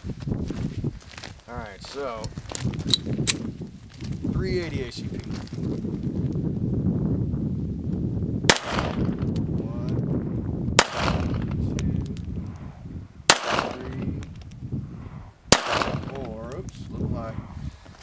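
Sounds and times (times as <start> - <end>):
handgun shots: 8.5 - 9.2, 10.8 - 11.5, 13.3 - 14.0, 15.5 - 16.2
low rumble: 8.7 - 18.0.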